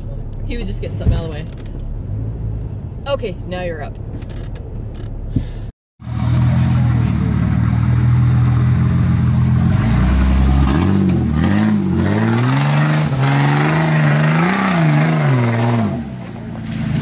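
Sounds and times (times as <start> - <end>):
engine revving under load: 6.0 - 17.0.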